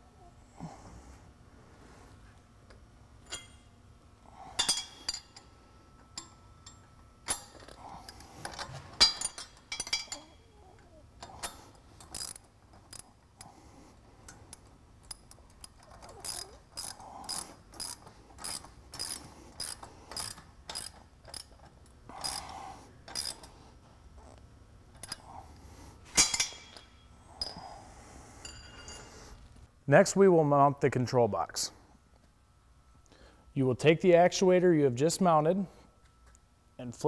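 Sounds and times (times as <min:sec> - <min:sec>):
ratchet wrench clicking: 0:11.2 - 0:13.1, 0:14.6 - 0:22.5, 0:23.1 - 0:23.5.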